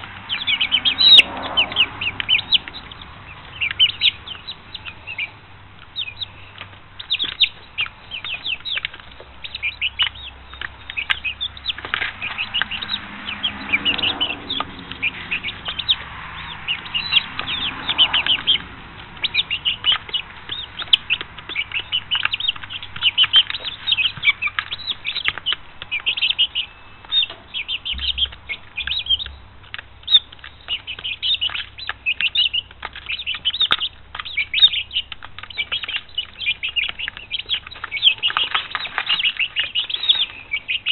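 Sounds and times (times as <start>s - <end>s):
chicks peeping: 0.0s - 40.9s
rustling: 13.9s - 40.9s.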